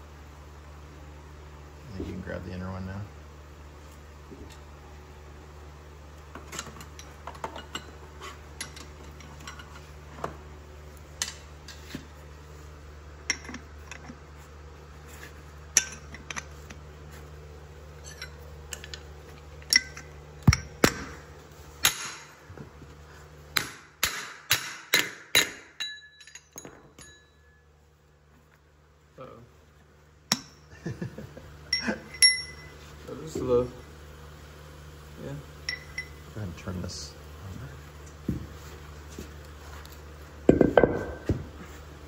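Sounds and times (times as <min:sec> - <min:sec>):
steel clinks and knocks: 0:19.6 - 0:21.1, 0:24.0 - 0:27.6, 0:31.7 - 0:32.8, 0:35.7 - 0:36.2.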